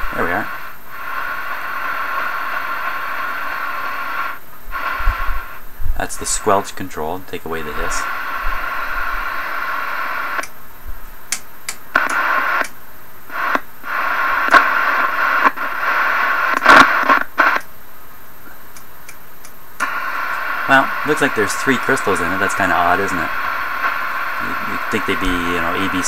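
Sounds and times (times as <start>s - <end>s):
radio receiver hiss: 0.0s - 26.0s
channel selector switch clicks: 18.7s - 20.4s.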